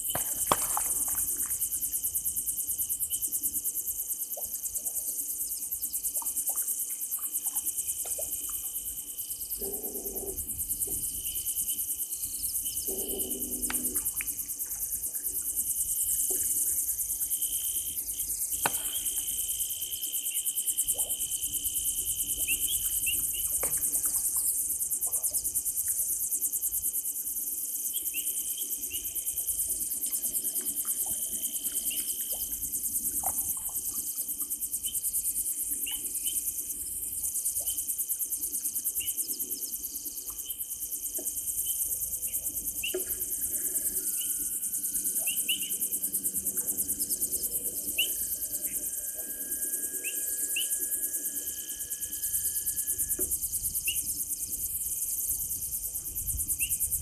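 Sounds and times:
faint continuous tone: 0.0s - 57.0s
insects trilling: 0.0s - 57.0s
short insect chirps: 5.2s - 27.0s, 40.4s - 57.0s.

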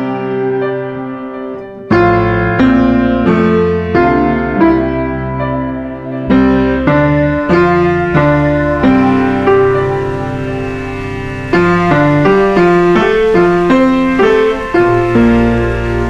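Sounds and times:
soft piano music: 0.0s - 16.0s.

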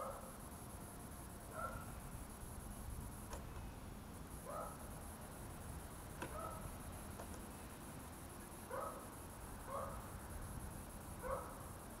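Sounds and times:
dog barking: 0.0s - 0.3s, 1.5s - 1.9s, 4.4s - 4.8s, 6.3s - 6.6s, 8.7s - 9.0s, 9.7s - 10.0s, 11.2s - 11.6s.

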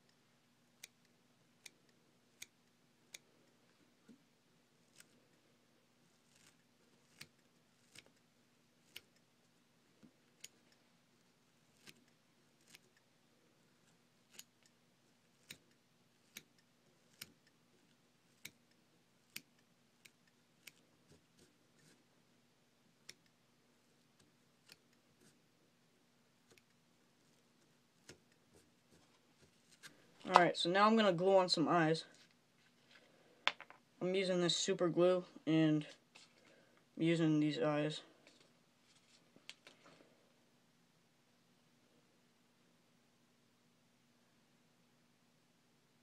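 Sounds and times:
faint steady hum: 0.0s - 46.0s
small scissors snipping: 4.9s - 5.2s, 6.2s - 9.3s, 11.7s - 13.1s, 13.8s - 22.0s, 24.2s - 25.4s, 28.0s - 28.7s.

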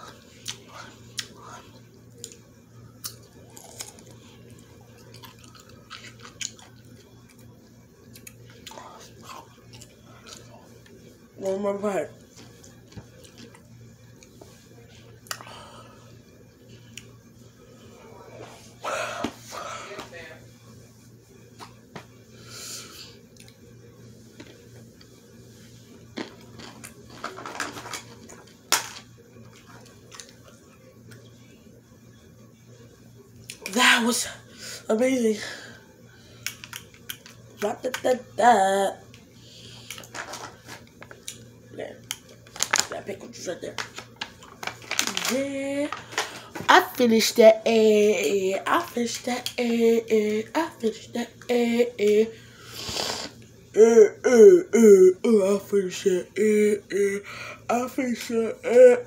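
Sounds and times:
person chewing crunchy food: 3.0s - 10.6s.

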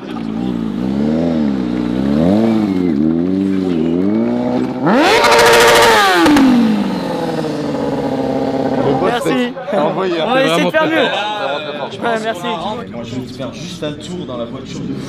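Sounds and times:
motorcycle engine revving: 0.0s - 9.2s.

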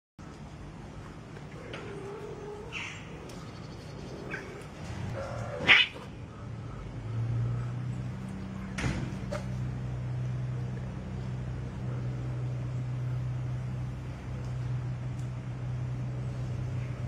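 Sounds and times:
low steady hum: 0.2s - 17.0s
cats meowing: 4.1s - 6.2s.

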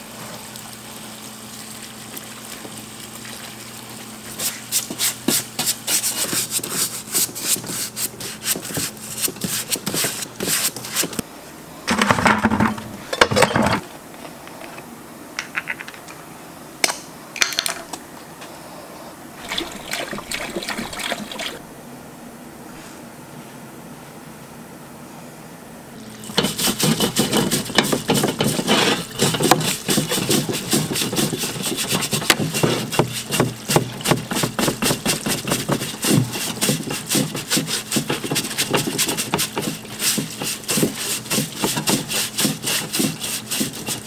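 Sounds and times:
pump humming: 0.0s - 11.2s, 19.4s - 21.8s, 25.9s - 44.0s
brush scrubbing metal: 4.3s - 11.2s, 26.2s - 44.0s
liquid splashing: 19.4s - 21.6s, 26.0s - 44.0s.

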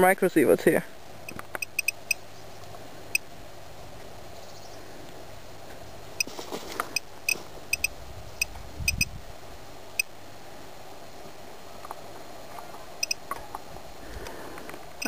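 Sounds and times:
geiger counter clicking: 1.3s - 2.2s, 13.0s - 13.2s
handling rustle: 3.9s - 8.8s.

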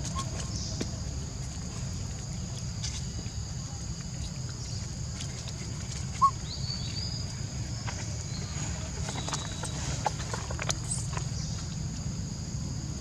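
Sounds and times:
faint rustles and clicks: 0.0s - 12.1s
short squeak: 6.2s - 6.4s.

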